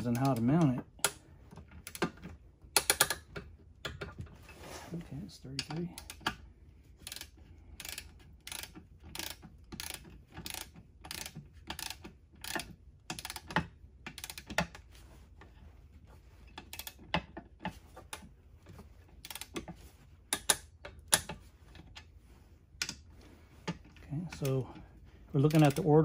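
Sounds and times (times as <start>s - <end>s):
torque wrench ratchet clicking: 7.0s - 14.6s, 19.2s - 19.6s, 25.5s - 25.9s.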